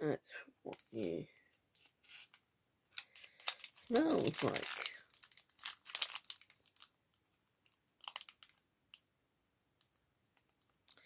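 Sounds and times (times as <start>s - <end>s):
packaging crinkling: 3.0s - 7.0s, 7.6s - 8.6s.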